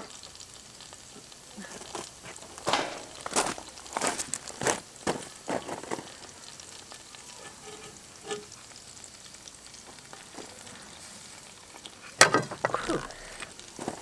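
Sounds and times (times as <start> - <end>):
roast sizzling: 0.0 - 14.0
metal utensils clattering: 2.6 - 3.7, 7.3 - 8.5.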